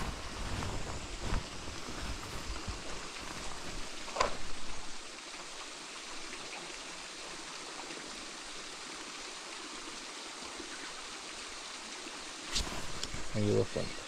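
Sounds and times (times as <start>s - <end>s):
wind rumbling on microphone: 0.0s - 5.0s
river water flowing: 0.0s - 14.0s.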